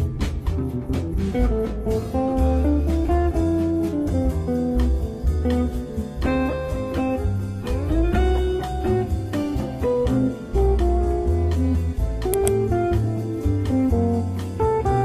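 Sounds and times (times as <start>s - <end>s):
guitar-led instrumental music: 0.0s - 15.0s.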